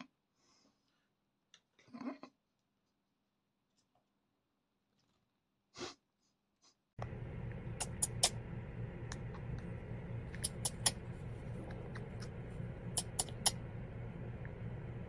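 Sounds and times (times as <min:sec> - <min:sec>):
low hum: 0:07.0 - 0:15.0
parrot clicking: 0:07.7 - 0:08.4, 0:10.3 - 0:11.0, 0:12.0 - 0:13.6.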